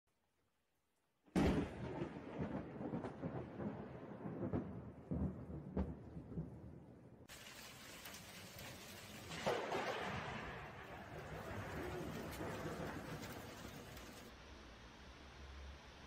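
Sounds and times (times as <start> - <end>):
sharp thunder cracks: 1.4 - 6.8, 9.3 - 14.3
thunder rumbling: 1.4 - 14.3
rain hiss: 7.3 - 16.0.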